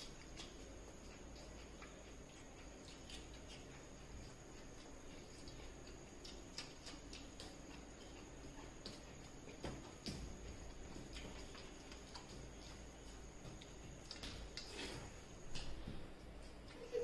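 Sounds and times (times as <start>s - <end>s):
chewing sounds: 0.0s - 9.6s.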